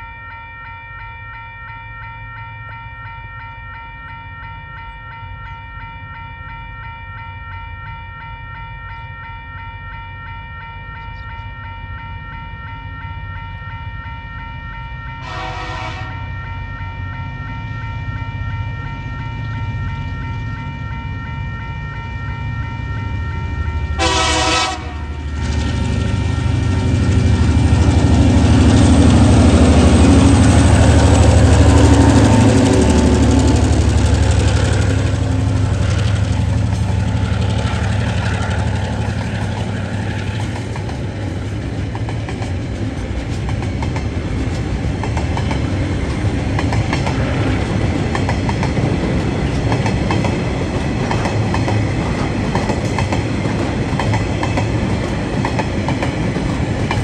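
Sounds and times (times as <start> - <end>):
diesel locomotive engines: 0.0 - 57.0
train wheels clicking over rail joints: 25.3 - 57.0.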